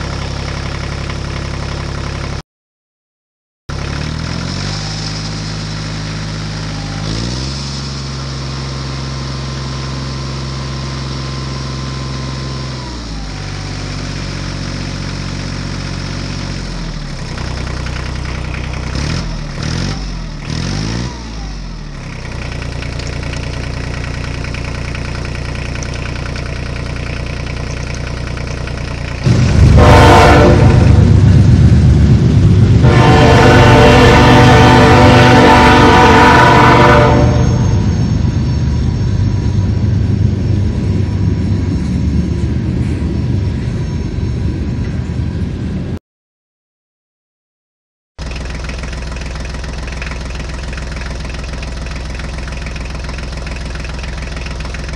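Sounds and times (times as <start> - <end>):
tractor engine running: 0.0 - 2.4, 3.7 - 45.9, 48.2 - 54.9
loud train horn: 29.3 - 31.2, 32.6 - 38.2.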